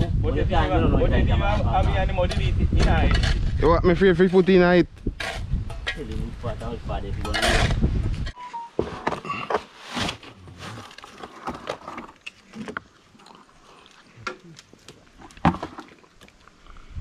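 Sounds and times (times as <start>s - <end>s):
masonry knocks and scrapes: 1.5s - 6.3s, 7.1s - 12.8s.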